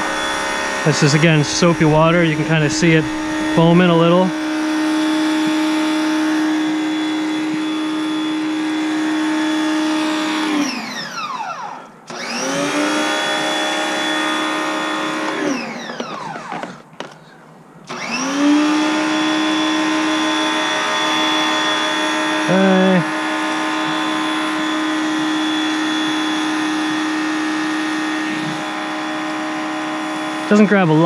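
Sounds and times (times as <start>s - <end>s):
pressure washer spraying: 0.0s - 10.8s, 17.9s - 31.0s
pressure washer motor hum: 0.0s - 17.2s, 17.8s - 31.0s.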